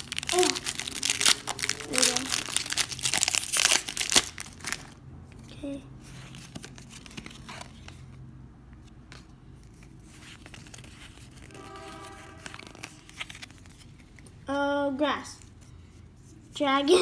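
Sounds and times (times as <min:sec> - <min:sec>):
trading cards being flipped: 0:09.1 - 0:14.3.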